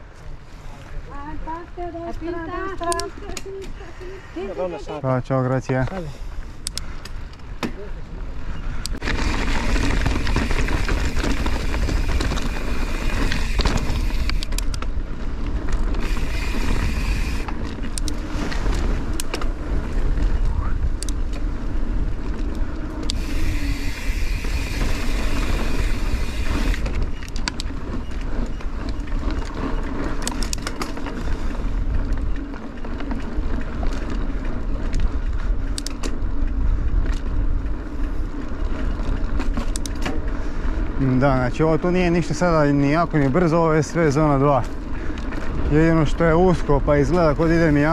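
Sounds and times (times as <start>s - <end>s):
wind on microphone: 8.4s - 29.3s
bike rattling over rocks: 8.9s - 47.9s.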